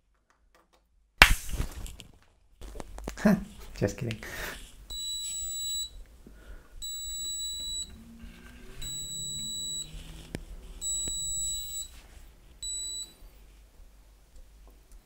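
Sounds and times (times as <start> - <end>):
muffled piezo buzzer beeping: 4.9 - 6.0, 6.8 - 10.0, 10.8 - 12.0, 12.6 - 13.2.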